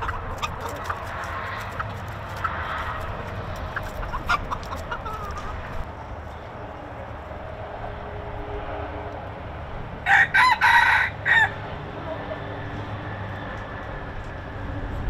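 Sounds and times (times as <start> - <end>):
chickens clucking and chirping: 0.0 - 5.9
rooster crowing: 10.0 - 11.7.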